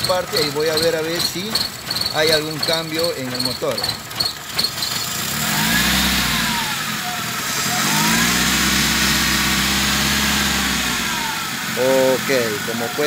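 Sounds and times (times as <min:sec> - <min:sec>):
car engine revving up: 0:04.9 - 0:13.0.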